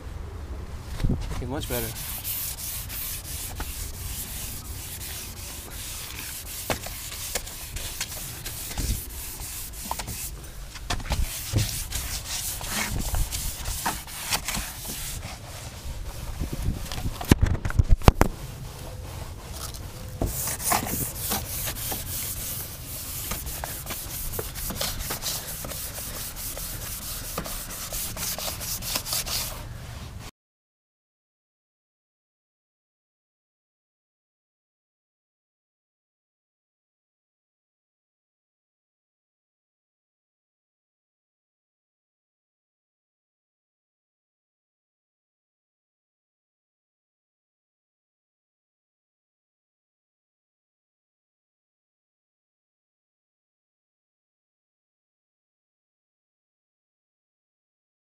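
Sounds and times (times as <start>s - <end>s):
sandpaper scrubbing on metal: 1.6s - 10.4s, 11.1s - 17.1s, 18.5s - 29.7s.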